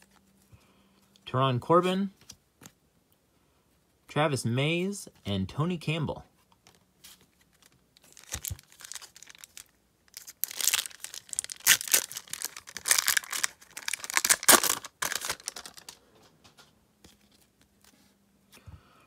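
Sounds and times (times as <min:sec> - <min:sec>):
wrapper crinkling and tearing: 0:07.4 - 0:16.0.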